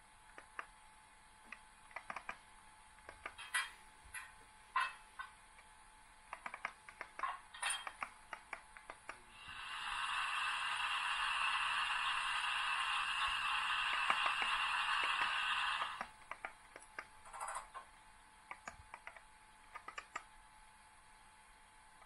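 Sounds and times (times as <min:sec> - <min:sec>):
clicks: 0:01.5 - 0:02.4, 0:03.0 - 0:05.7, 0:06.3 - 0:09.2, 0:18.5 - 0:20.3
steam hiss with tone: 0:09.3 - 0:16.1.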